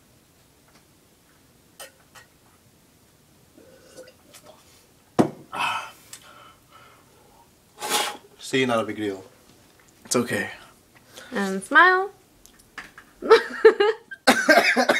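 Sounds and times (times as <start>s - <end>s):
person gulping milk: 3.6s - 4.6s
breathy exhale: 5.6s - 8.2s.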